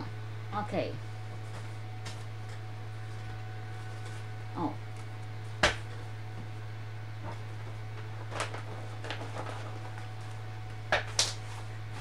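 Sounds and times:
steady low hum: 0:00.0 - 0:12.0
paper packets rustling: 0:08.0 - 0:10.4.

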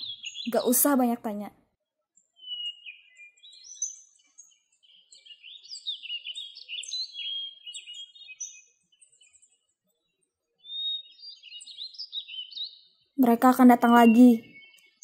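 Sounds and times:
songbirds chirping: 0:00.0 - 0:15.0.

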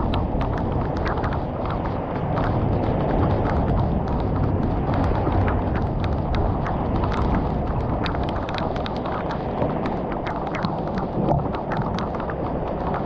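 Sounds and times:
heavy rain pouring: 0:00.0 - 0:13.0
raindrops tapping close by: 0:00.0 - 0:13.0.

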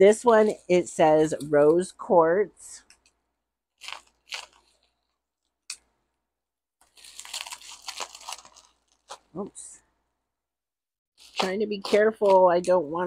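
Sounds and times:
bubble wrap crackling: 0:03.7 - 0:05.5, 0:06.8 - 0:09.4, 0:11.2 - 0:12.7.

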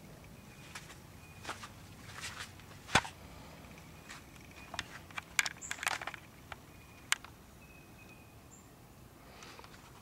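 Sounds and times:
footsteps on grass and dry leaves: 0:00.6 - 0:03.2.

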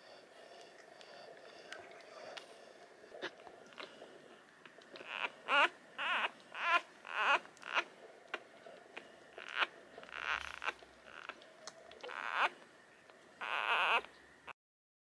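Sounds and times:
puppies squeaking and whimpering: 0:05.0 - 0:07.9, 0:09.4 - 0:11.4, 0:12.0 - 0:12.6, 0:13.4 - 0:14.1.

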